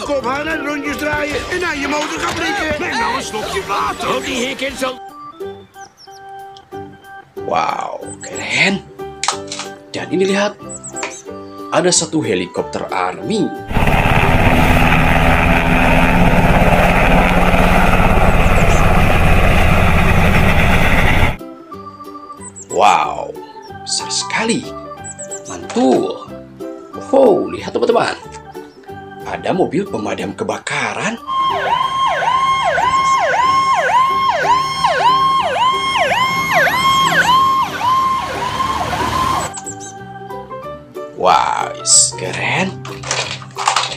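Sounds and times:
fire truck siren: 13.7s - 21.4s, 31.2s - 39.8s
helicopter rotor chop: 13.7s - 21.4s
turbine engines running: 13.7s - 21.4s.

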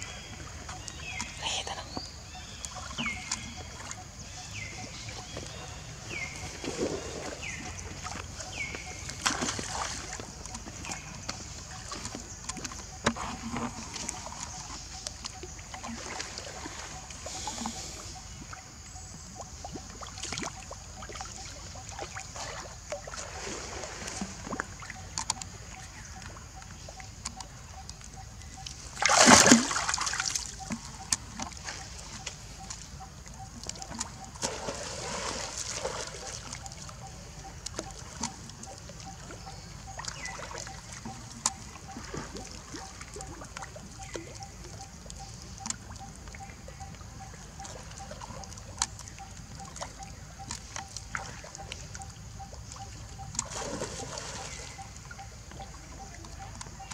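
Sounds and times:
water splashing and sloshing: 0.0s - 56.9s
loud splash: 29.0s - 30.3s, 34.4s - 36.2s.

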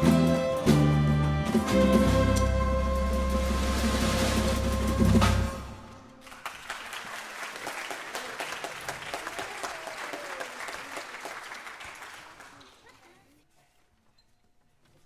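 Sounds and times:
audience applauding: 6.2s - 13.2s.

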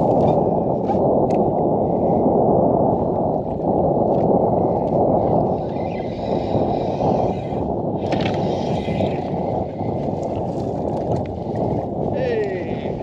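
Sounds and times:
wind buffeting microphone: 0.0s - 13.0s
water lapping at kayak hull: 3.0s - 13.0s.

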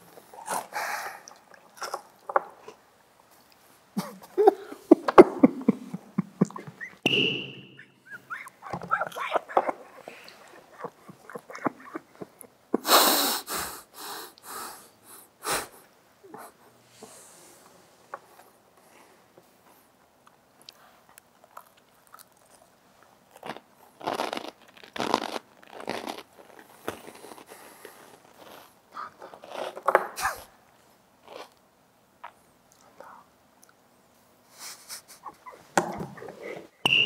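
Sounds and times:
chips crunching being chewed: 1.3s - 2.8s, 20.6s - 22.7s, 23.3s - 30.1s, 31.2s - 31.6s.

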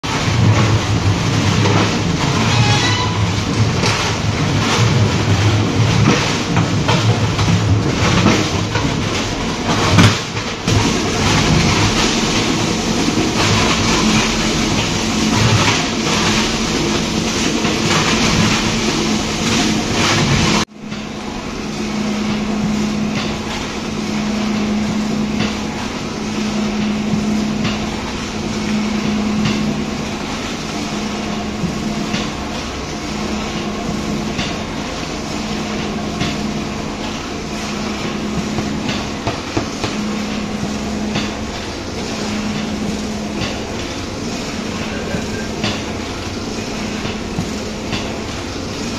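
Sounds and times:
steady motor hum: 0.0s - 48.9s
pan mixer rattling: 0.1s - 20.7s.

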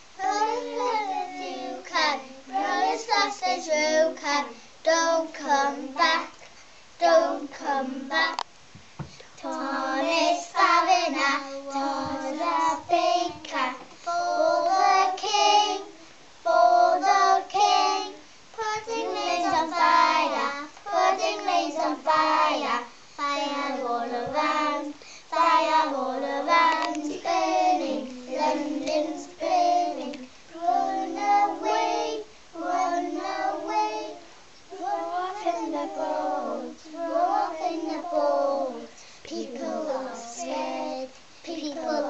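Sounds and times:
young children singing: 0.0s - 8.5s, 9.4s - 42.0s.

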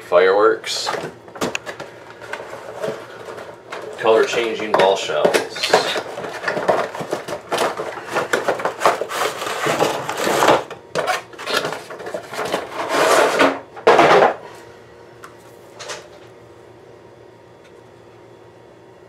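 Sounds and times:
cardboard rustling and knocking: 1.0s - 14.4s.

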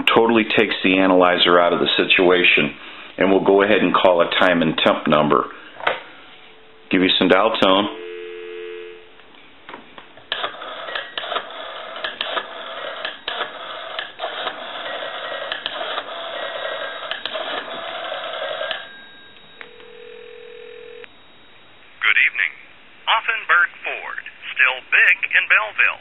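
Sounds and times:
telephone line noise: 7.4s - 9.1s, 10.4s - 22.5s
ringback tone: 7.8s - 9.2s, 16.3s - 22.2s
telephone dial tone: 8.0s - 9.0s, 10.4s - 21.1s.

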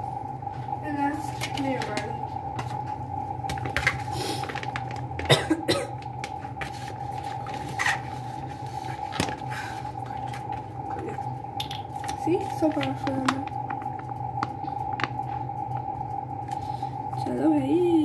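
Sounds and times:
steady electrical hum: 0.0s - 18.0s
person coughing: 5.2s - 6.0s.

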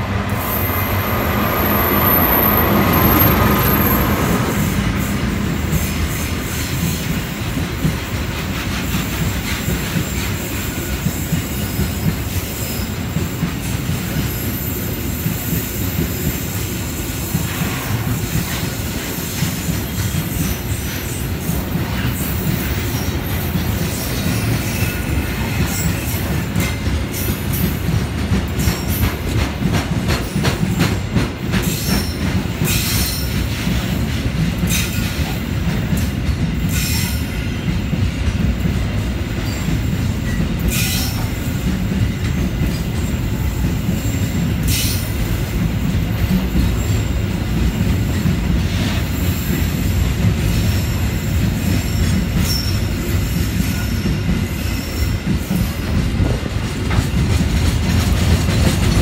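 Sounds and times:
locomotive engine passing: 0.0s - 5.7s
freight cars rumbling: 0.0s - 10.2s.

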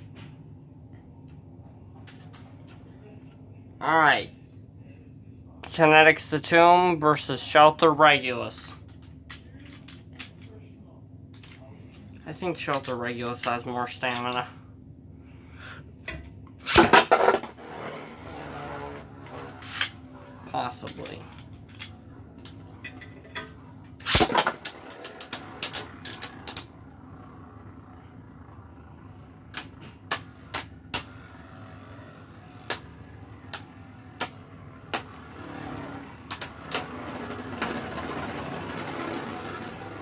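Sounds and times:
spinning top whirring rattle: 16.7s - 40.0s
spinning tops clashing: 23.9s - 26.7s.

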